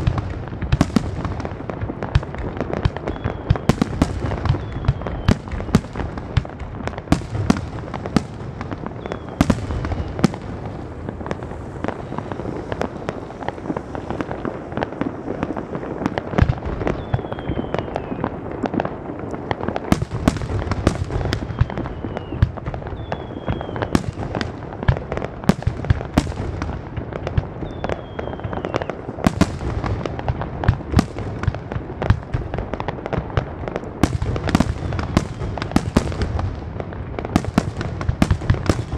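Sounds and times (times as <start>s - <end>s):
fireworks bangs: 0.0s - 38.9s
fireworks crackle: 0.0s - 38.9s
falling whistles: 4.5s - 5.8s, 9.0s - 10.2s, 16.8s - 18.3s, 21.2s - 23.9s, 27.6s - 29.0s.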